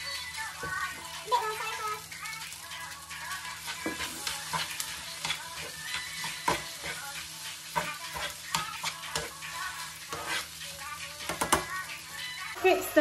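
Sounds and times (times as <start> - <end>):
rice sizzling in a frying pan: 0.0 - 13.0
utensil scraping a pan: 3.7 - 11.7.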